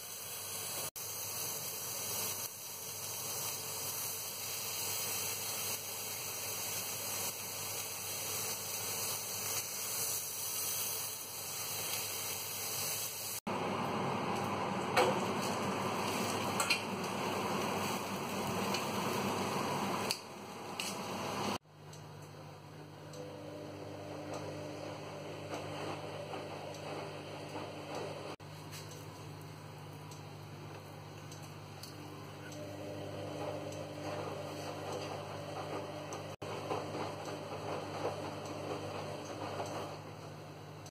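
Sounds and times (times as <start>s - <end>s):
meat sizzling in a grill pan: 0.0s - 13.4s.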